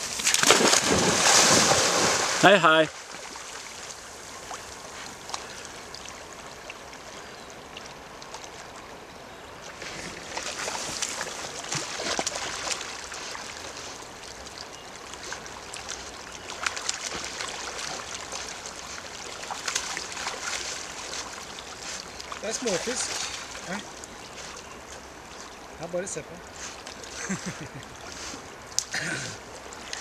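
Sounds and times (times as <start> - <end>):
splashing in water: 0.0 - 6.2, 9.6 - 25.8
river flowing: 0.0 - 30.0.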